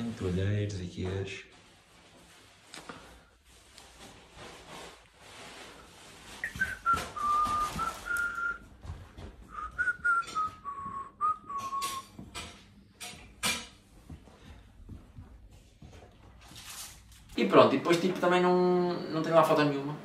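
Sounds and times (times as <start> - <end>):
person whistling a tune: 6.4 - 8.7, 9.5 - 12.2.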